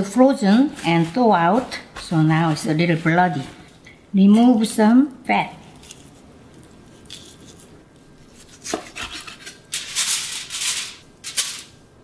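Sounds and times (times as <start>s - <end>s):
aluminium foil crinkling: 8.4s - 11.8s.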